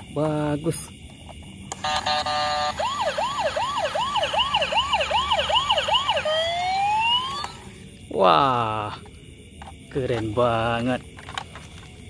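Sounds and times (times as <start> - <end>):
toy ambulance electronic siren: 1.7 - 7.7.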